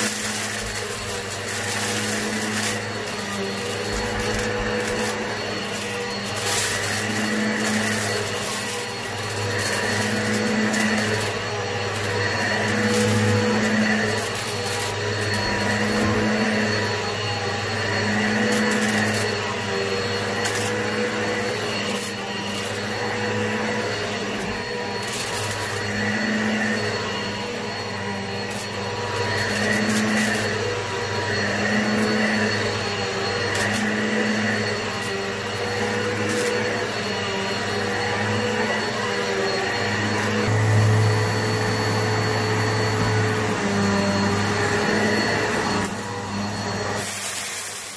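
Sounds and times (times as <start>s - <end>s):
grit crackling in vacuum: 0.0s - 16.5s
vacuum cleaner motor hum: 0.0s - 47.9s.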